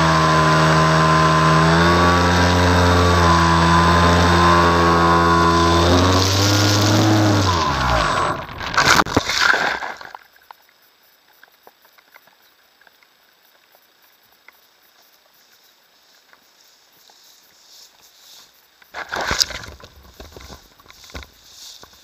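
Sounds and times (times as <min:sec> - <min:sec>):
electric motor and propeller winding down: 0:00.0 - 0:09.1
grass rustling: 0:00.0 - 0:10.2, 0:15.4 - 0:22.0
faint ticks: 0:10.2 - 0:19.0.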